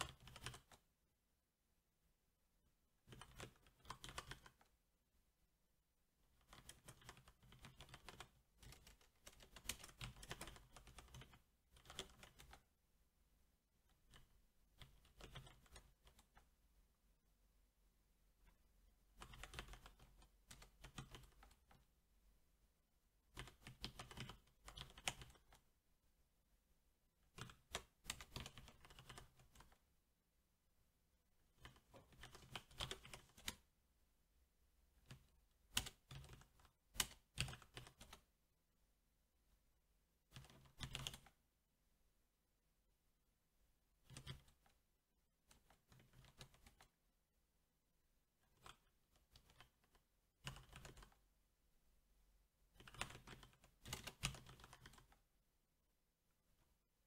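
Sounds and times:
mechanical keyboard typing: 0:00.0 - 0:00.8, 0:03.0 - 0:04.7, 0:06.4 - 0:12.7, 0:14.1 - 0:16.4, 0:19.2 - 0:21.7, 0:23.3 - 0:25.6, 0:27.3 - 0:29.8, 0:31.6 - 0:33.6, 0:35.0 - 0:38.3, 0:40.3 - 0:41.3, 0:44.0 - 0:44.7, 0:48.5 - 0:51.2, 0:52.8 - 0:55.2.

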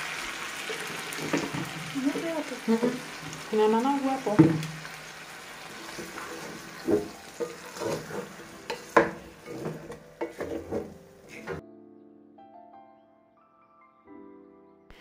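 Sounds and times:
chicken sizzling in a pot: 0:00.0 - 0:11.6
wooden spoon knocking and scraping pot: 0:01.2 - 0:03.4, 0:04.2 - 0:04.9, 0:05.7 - 0:11.6.

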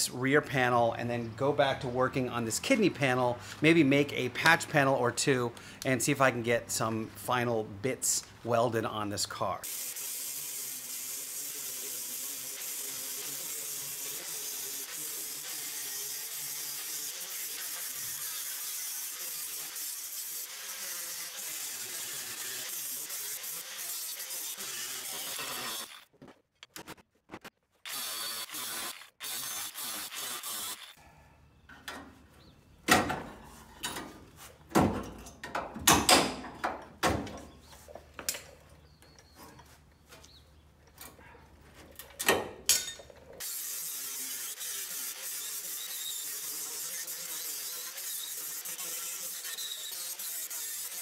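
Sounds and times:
angle grinder grinding metal: 0:09.6 - 0:26.1, 0:27.8 - 0:31.0, 0:42.7 - 0:51.0.

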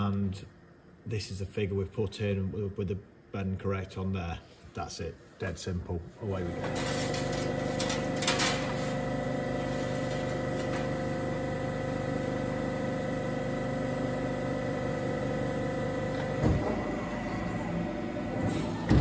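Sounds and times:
press brake machine hum and whine: 0:06.3 - 0:19.0
machine clatter: 0:06.7 - 0:08.8
machine thump: 0:16.3 - 0:16.9, 0:18.7 - 0:19.0.

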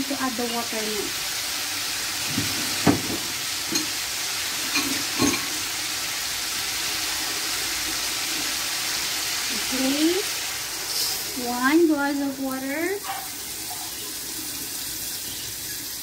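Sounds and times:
chicken sizzling in a wok: 0:00.0 - 0:16.0
light knocks on a wok: 0:02.2 - 0:03.9.

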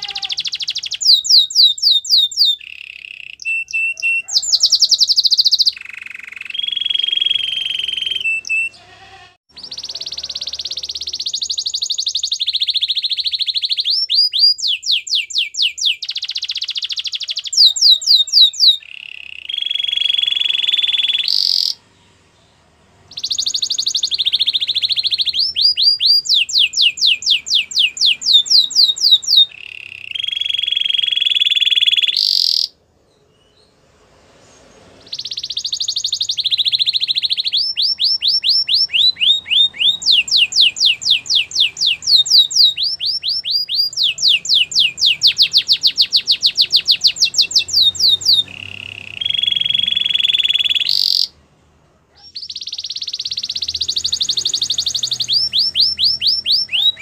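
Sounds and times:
canary singing trills: 0:00.0 - 0:33.8, 0:34.6 - 0:51.4, 0:52.1 - 0:57.0.

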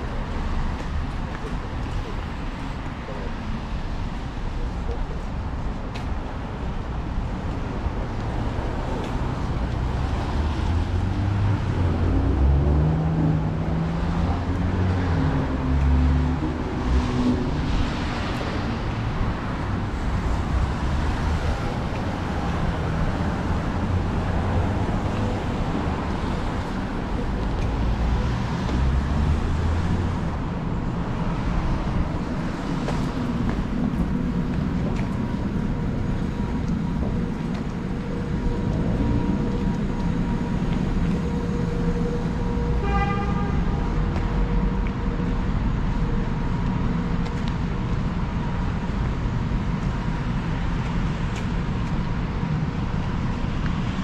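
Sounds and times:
heavier engine hum: 0:00.0 - 0:54.0
rumble of cars passing: 0:00.0 - 0:54.0.

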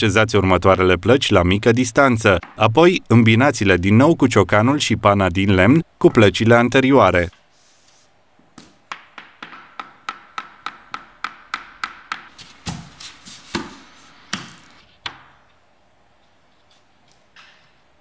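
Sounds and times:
hammer tapping wooden block: 0:08.6 - 0:12.3
laminate plank knocking: 0:08.9 - 0:12.3.

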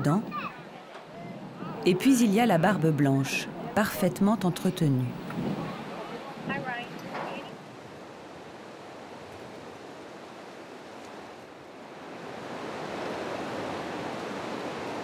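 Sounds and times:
outdoor rushing ambience: 0:00.0 - 0:07.1.

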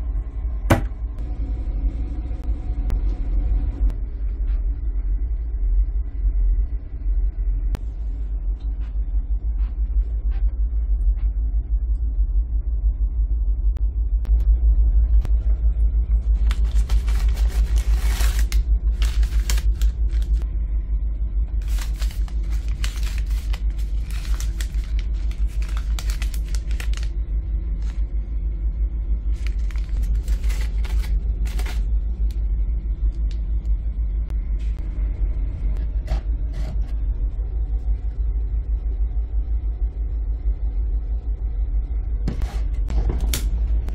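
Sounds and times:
plastic packets crinkling: 0:16.4 - 0:20.4, 0:21.6 - 0:27.1, 0:27.7 - 0:28.0, 0:29.4 - 0:31.9.

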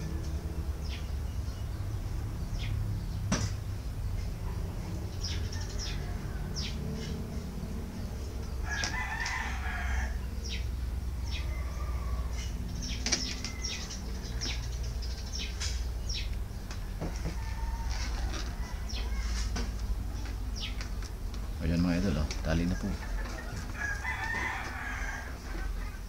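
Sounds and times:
rooster crowing: 0:05.2 - 0:07.2, 0:08.5 - 0:10.6, 0:11.2 - 0:12.7, 0:16.8 - 0:19.3, 0:22.7 - 0:25.9.

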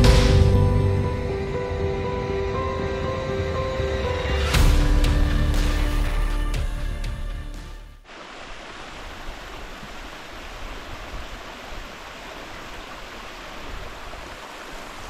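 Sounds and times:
background music: 0:00.0 - 0:08.0
stream rushing: 0:08.0 - 0:15.0.

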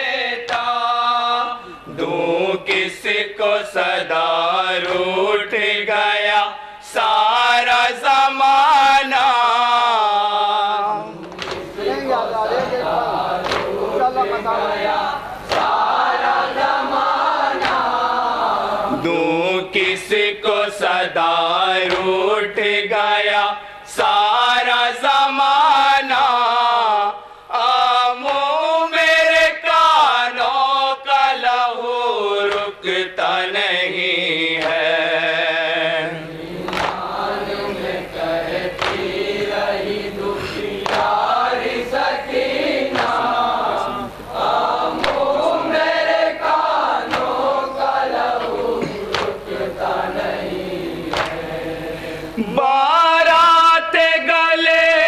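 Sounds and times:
men chanting lament in unison: 0:00.0 - 0:55.0
hands slapping chest: 0:11.2 - 0:11.7, 0:13.4 - 0:13.8, 0:15.5 - 0:15.8, 0:34.6 - 0:34.9, 0:36.6 - 0:37.1, 0:38.8 - 0:39.1, 0:40.8 - 0:41.2, 0:42.9 - 0:43.2, 0:45.0 - 0:45.3, 0:47.1 - 0:47.4, 0:49.1 - 0:49.4, 0:51.1 - 0:51.4.

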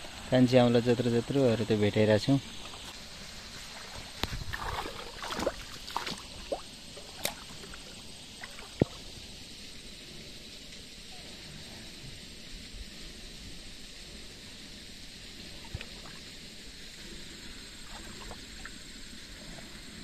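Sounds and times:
flowing water rushing: 0:00.0 - 0:20.0
hands splashing in stream water: 0:03.6 - 0:09.1, 0:17.8 - 0:18.8.

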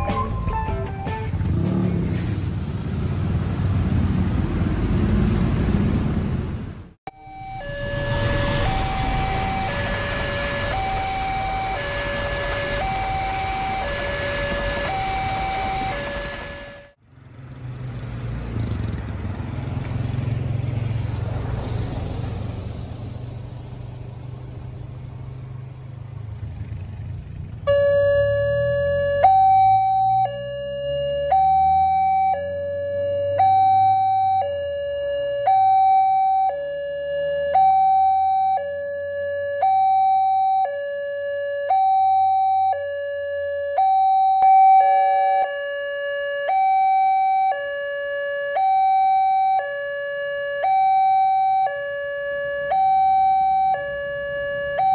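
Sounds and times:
vehicle engine rumbling: 0:00.0 - 0:35.6
level crossing two-tone alarm: 0:07.1 - 0:17.0, 0:27.7 - 0:54.9.

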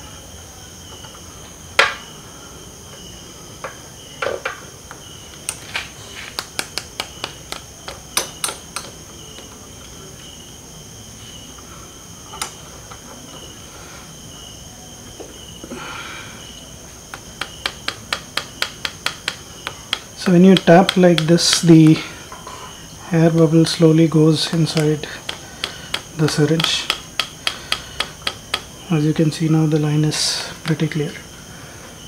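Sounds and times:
fingers tapping on syringe: 0:06.4 - 0:08.9, 0:17.1 - 0:21.6, 0:24.5 - 0:28.7.

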